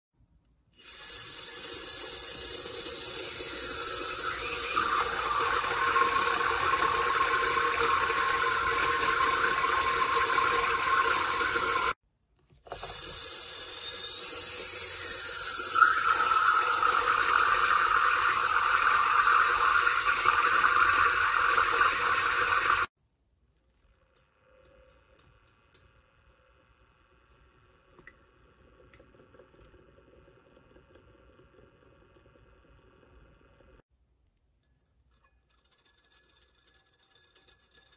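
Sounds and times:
magnetic stirrer motor whine: 0.8 - 12.0, 12.7 - 22.9.

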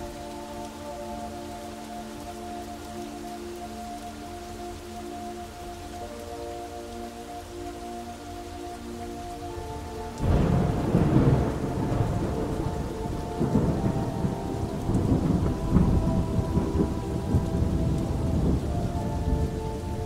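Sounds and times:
steady rain: 0.0 - 20.0
thunder rumbling: 10.2 - 20.0.

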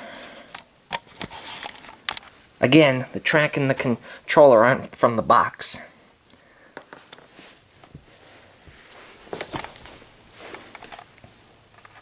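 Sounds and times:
camera handling rustle: 0.5 - 2.3
soft footsteps: 6.8 - 11.4.

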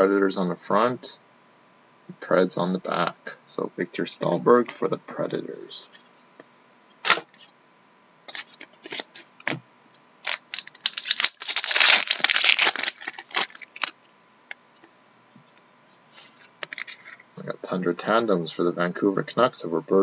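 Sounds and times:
cards clicking and scraping: 8.3 - 9.6, 16.3 - 17.2
foil wrapper tearing and crinkling: 10.2 - 14.0.

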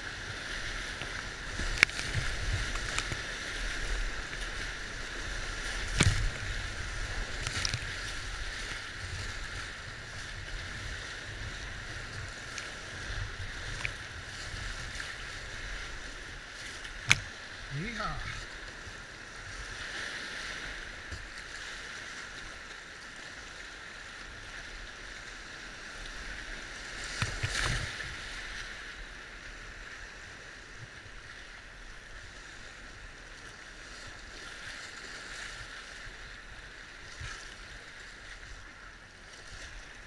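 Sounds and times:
paddle strokes splashing: 0.0 - 29.7
rushing whitewater: 0.0 - 29.8.

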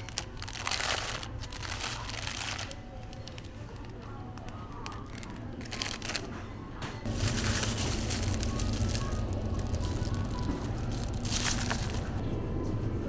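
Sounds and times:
plastic bread bag crinkling: 0.0 - 6.4, 7.1 - 12.2
store background hum: 0.0 - 13.0.

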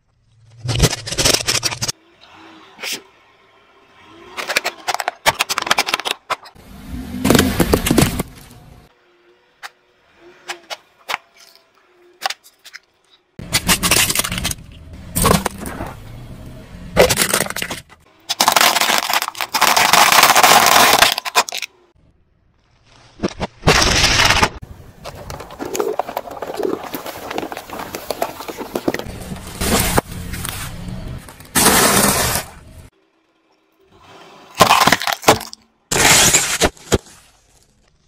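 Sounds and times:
tyre crushing objects: 4.5 - 8.7, 17.0 - 21.7, 23.1 - 32.6, 34.6 - 37.6
plastic bags splitting open: 17.0 - 21.7.

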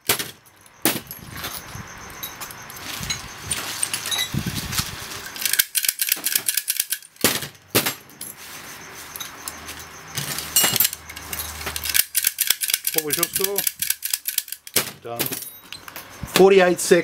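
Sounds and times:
keys jangling: 5.2 - 7.2, 10.3 - 16.2
pick gun metallic clicks: 5.4 - 7.3, 10.8 - 14.8.

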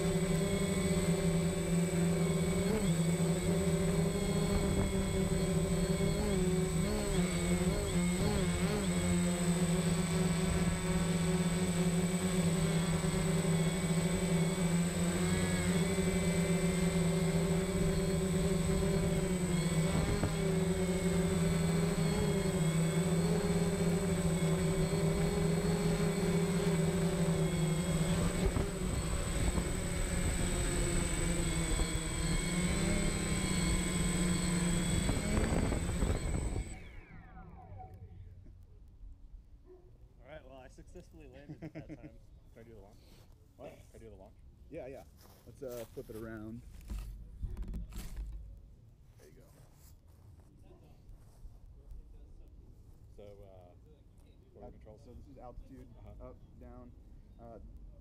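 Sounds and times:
drone propellers humming: 0.0 - 38.3.

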